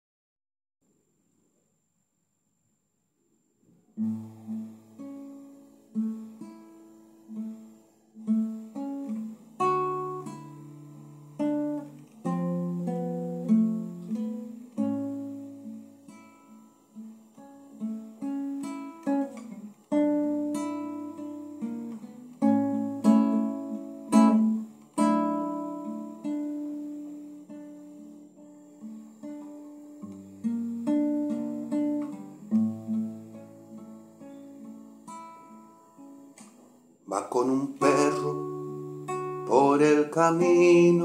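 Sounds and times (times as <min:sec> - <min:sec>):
classical guitar fingerpicking: 0:04.0 - 0:41.0.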